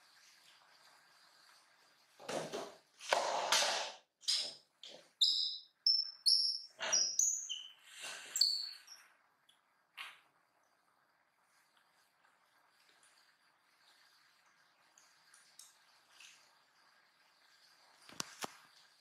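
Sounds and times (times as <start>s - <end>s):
monkeys chirping squeaks: 5.2s - 8.9s.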